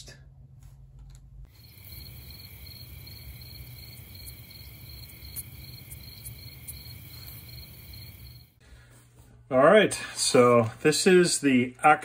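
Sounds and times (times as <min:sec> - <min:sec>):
crickets chirping: 0:01.5 - 0:08.6.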